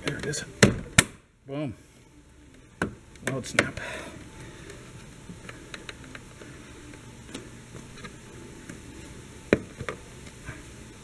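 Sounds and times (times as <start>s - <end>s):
sharp plastic snap: 0.1s - 1.2s.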